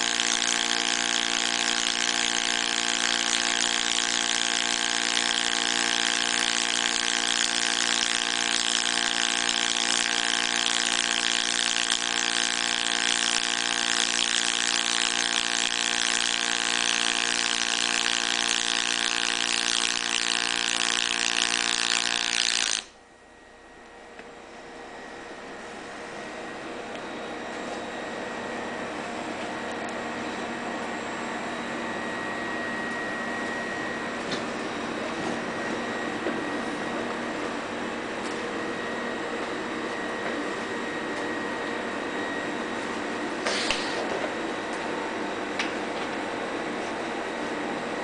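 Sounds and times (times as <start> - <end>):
welding arc buzzing and crackling: 0.0 - 23.0.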